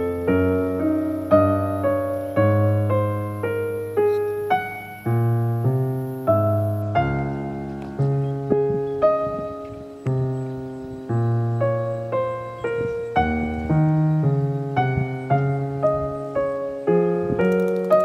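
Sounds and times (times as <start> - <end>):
slow piano melody: 0.0 - 18.0.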